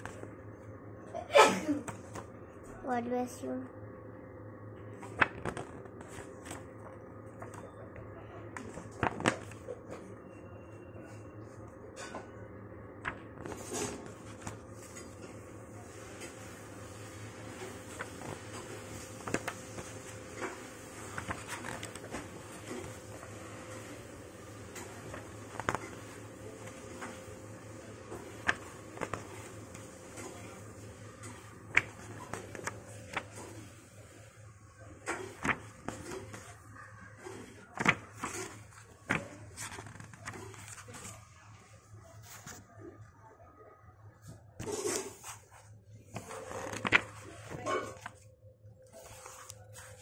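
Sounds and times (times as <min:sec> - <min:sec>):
steady low hum: 0:00.0 - 0:50.0
paper pages turning: 0:05.0 - 0:10.0, 0:13.0 - 0:34.4, 0:35.0 - 0:41.4, 0:44.6 - 0:48.3, 0:48.9 - 0:50.0.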